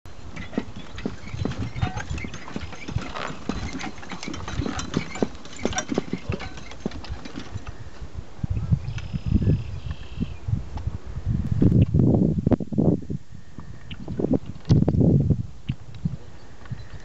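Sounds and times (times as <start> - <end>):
cart knocks and rattles: 0.1 - 7.8.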